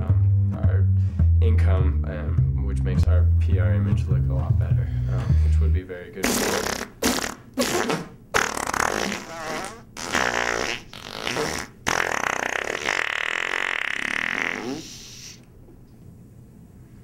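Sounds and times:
mouth fart noises: 6.2s - 15.5s.

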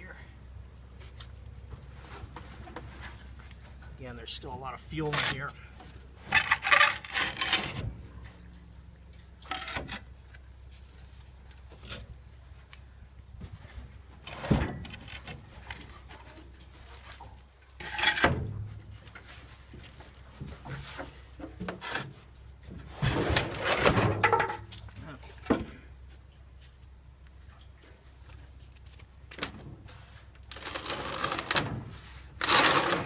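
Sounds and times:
steel tank scraping on wood: 6.2s - 7.9s, 17.8s - 19.8s, 29.9s - 33.0s.

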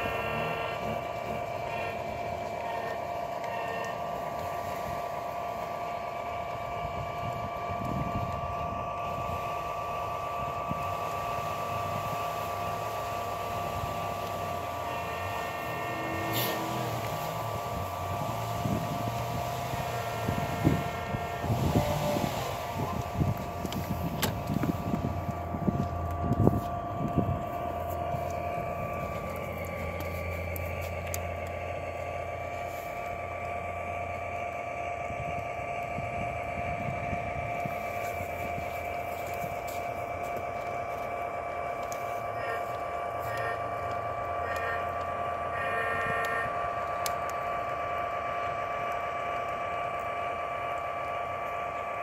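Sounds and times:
model train motors whining: 0.0s - 52.0s.

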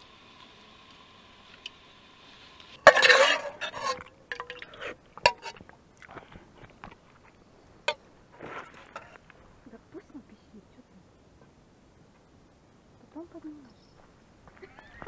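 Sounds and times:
knocks and clinks: 2.9s - 4.7s.

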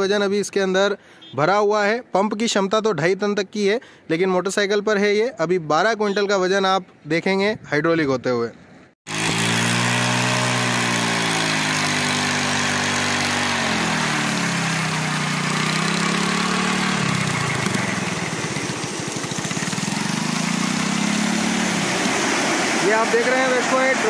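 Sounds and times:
motorcycle engine running: 9.1s - 24.0s.

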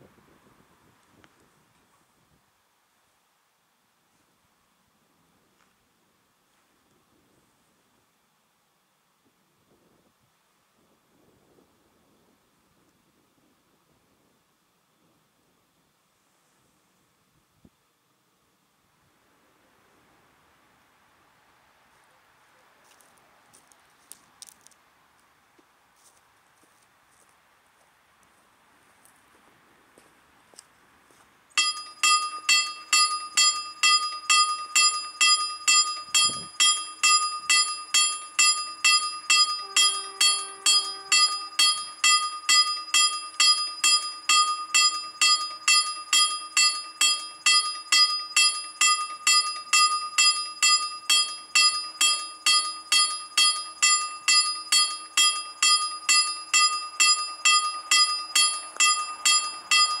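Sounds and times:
level crossing warning bell: 31.6s - 60.0s.

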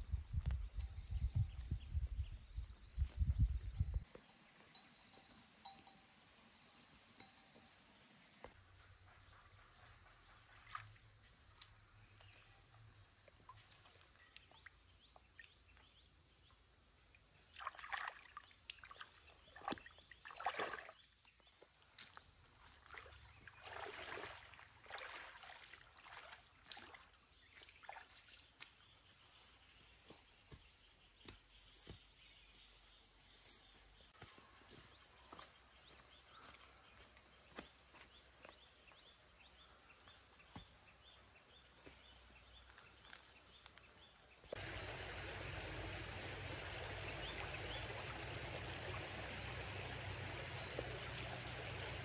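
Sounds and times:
stream water splashing: 17.4s - 21.3s, 22.6s - 28.6s, 44.5s - 52.0s.

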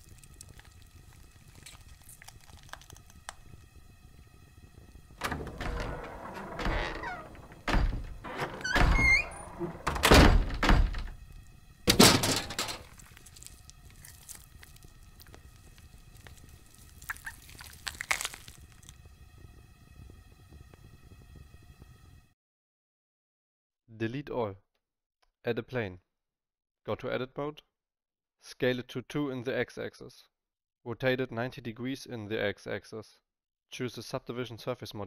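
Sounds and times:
short rising squeaks: 5.2s - 10.7s.

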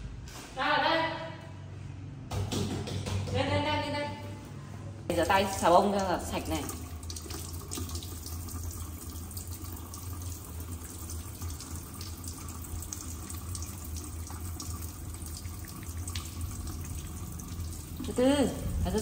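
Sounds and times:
faucet running into steel sink: 5.4s - 19.0s
low hum: 17.8s - 19.0s.

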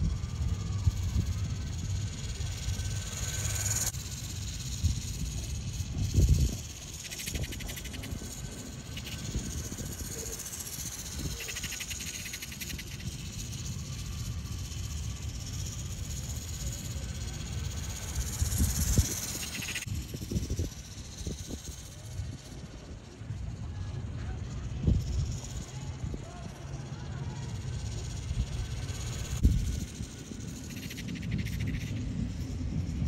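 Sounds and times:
electric toy motorcycle whirring: 0.0s - 21.6s
wind on microphone: 0.0s - 33.0s.

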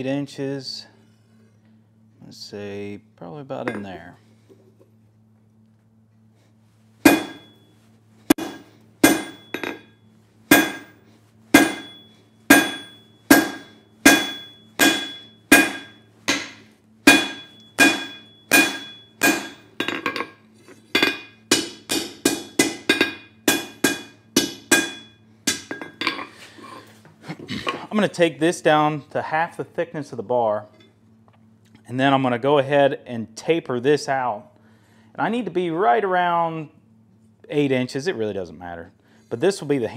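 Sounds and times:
faint low hum: 0.0s - 39.9s
hammer striking steel on anvil: 7.0s - 7.7s, 8.3s - 26.3s.

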